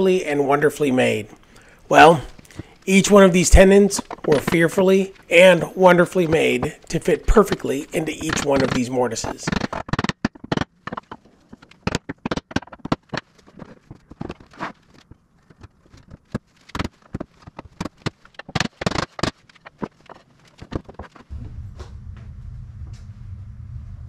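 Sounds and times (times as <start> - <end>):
wooden knocks and clatter: 2.2 - 21.9
steady low hum: 21.3 - 24.0.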